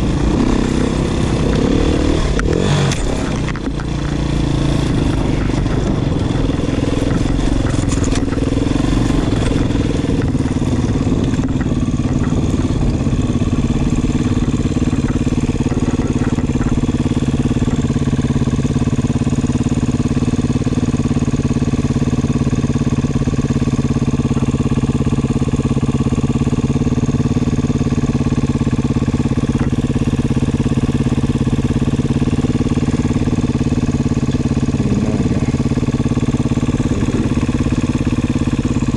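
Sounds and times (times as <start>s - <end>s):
dirt bike engine running: 0.0s - 38.9s
light clatter: 5.1s - 8.5s.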